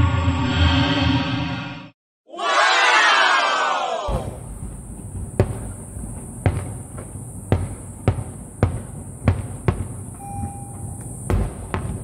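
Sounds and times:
fireworks booming: 4.1 - 10.2, 10.8 - 12.0.

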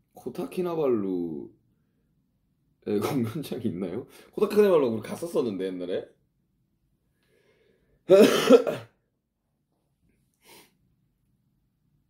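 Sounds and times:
man clearing throat: 8.1 - 9.0.

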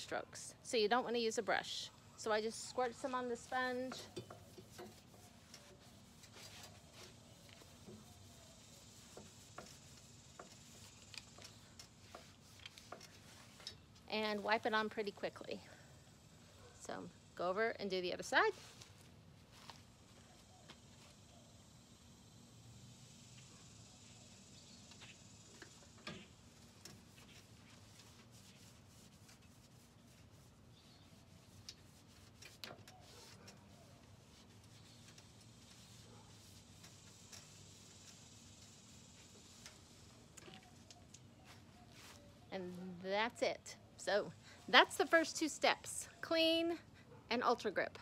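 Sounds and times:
sponge rubbing on metal: 2.3 - 15.2, 26.5 - 40.8.

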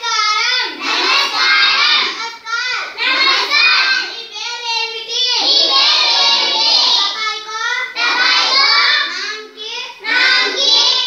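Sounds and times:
children chanting in chorus: 0.0 - 11.0.

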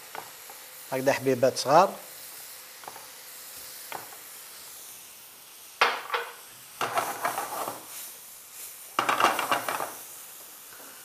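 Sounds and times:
food sizzling in a frying pan: 0.0 - 11.0
utensil knocking and scraping pan: 5.8 - 7.8, 9.0 - 10.0.

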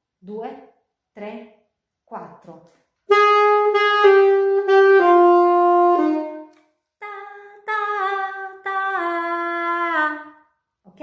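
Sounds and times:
alto saxophone playing: 3.1 - 6.6
woman singing syllables: 7.0 - 10.3.

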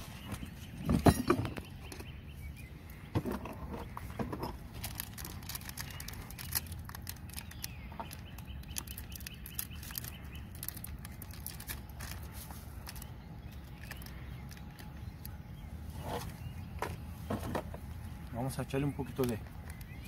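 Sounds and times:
paper bag crinkling: 4.6 - 14.9.

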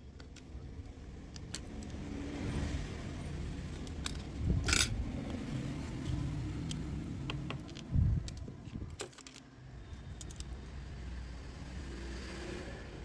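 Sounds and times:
tweezers clicking and scraping: 0.0 - 2.0, 3.6 - 5.4.

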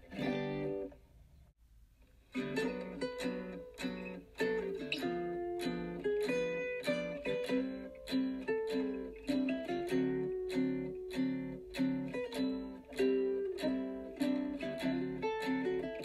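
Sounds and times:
strummed plucked-string instrument: 0.0 - 1.0, 2.2 - 16.0.

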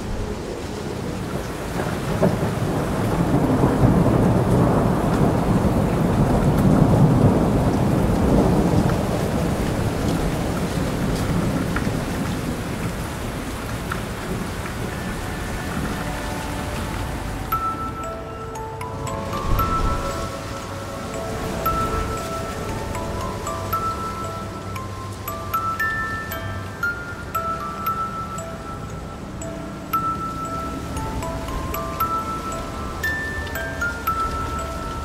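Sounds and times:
steady rain: 0.0 - 35.0
rolling thunder: 1.0 - 13.6
soft musical notes: 13.8 - 35.0.

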